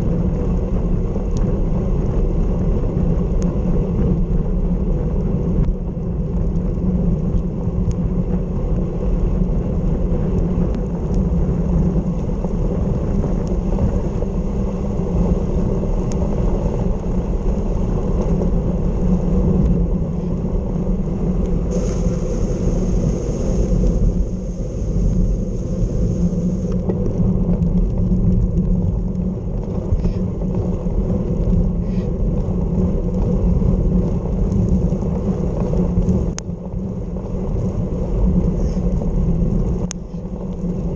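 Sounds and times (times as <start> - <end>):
wind buffeting microphone: 0.0 - 40.9
tyres hissing on wet road: 21.1 - 27.3
bright hiss: 21.7 - 26.8.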